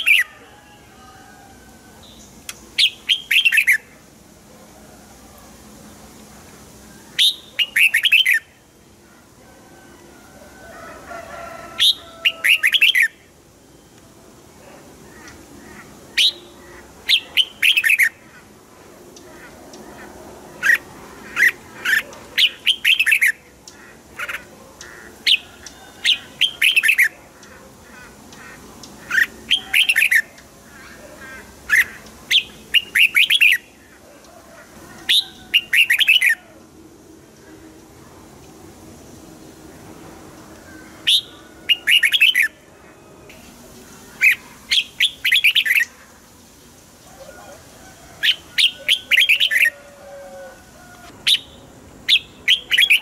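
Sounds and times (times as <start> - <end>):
bird whistled song phrases: 2.8 - 3.9, 7.1 - 8.5, 41.0 - 42.6.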